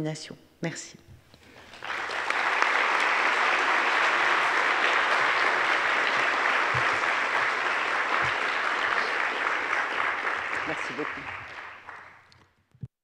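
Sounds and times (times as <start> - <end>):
audience applauding: 1.4 - 12.4.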